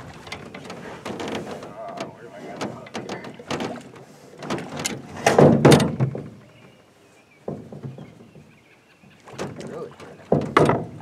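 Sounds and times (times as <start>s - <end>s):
thumps against aluminum boat hull: 0.4s - 6.4s, 9.3s - 11.0s.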